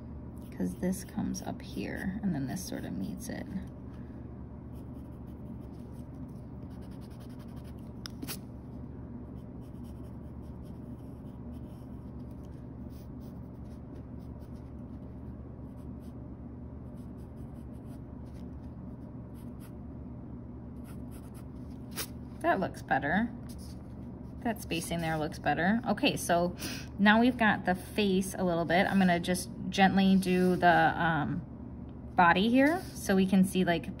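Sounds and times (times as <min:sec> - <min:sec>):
steady low hum: 0:00.0 - 0:34.0
pencil scratching on paper: 0:04.8 - 0:08.4, 0:09.4 - 0:15.0.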